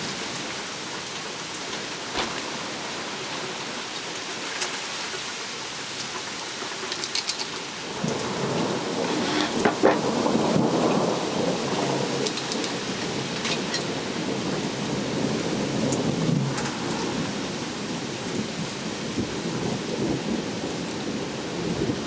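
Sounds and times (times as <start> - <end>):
sharp ticks of raindrops: 0.0 - 22.0
steady rain: 0.0 - 22.0
thunder rumbling: 7.8 - 22.0.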